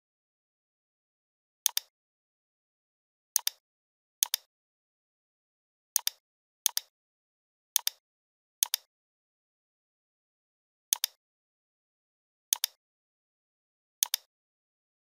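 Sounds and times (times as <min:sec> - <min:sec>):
computer mouse button clicking: 0:01.7 - 0:01.9, 0:10.9 - 0:11.2, 0:14.0 - 0:14.3.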